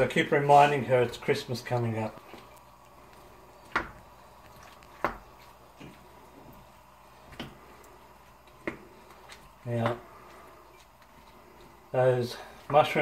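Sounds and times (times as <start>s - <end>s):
soft squishing of sauce: 2.1s - 11.9s.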